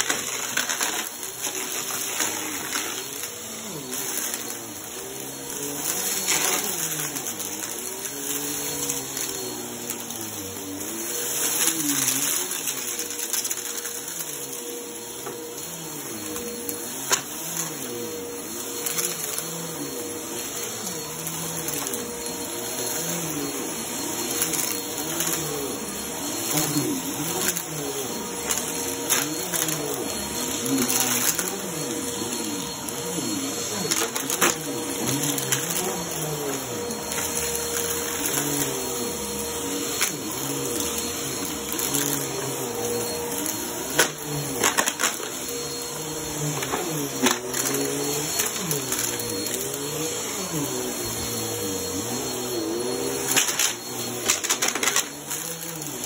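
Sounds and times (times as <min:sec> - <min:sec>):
vacuum cleaner humming: 0:00.0 - 0:56.0.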